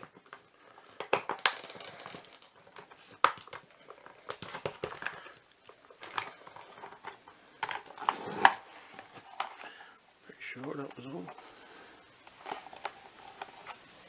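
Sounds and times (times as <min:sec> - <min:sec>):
plastic clicks and knocks: 0:00.0 - 0:09.6
plastic rubbing: 0:00.0 - 0:14.0.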